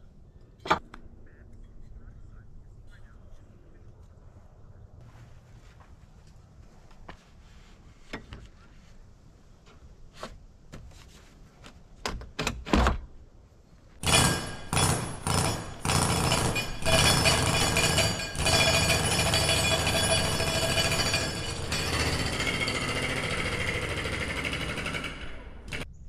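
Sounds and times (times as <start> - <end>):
power tool rattling: 14.0 - 25.9.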